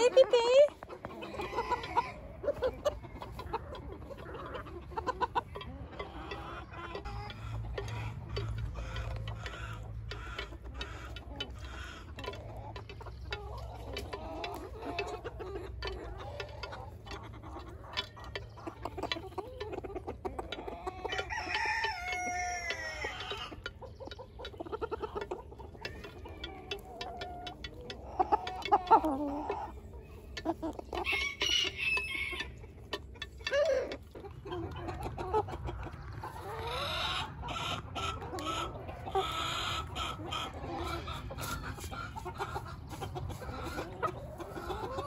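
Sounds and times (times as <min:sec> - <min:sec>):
chickens clucking: 0:00.0 - 0:45.0
rooster crowing: 0:21.2 - 0:23.2, 0:31.0 - 0:32.5.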